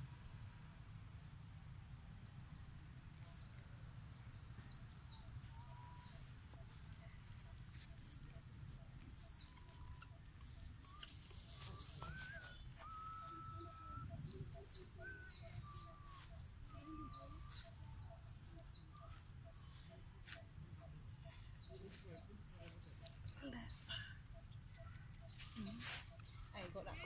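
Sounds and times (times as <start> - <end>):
whistled bird notes: 9.2 - 19.6.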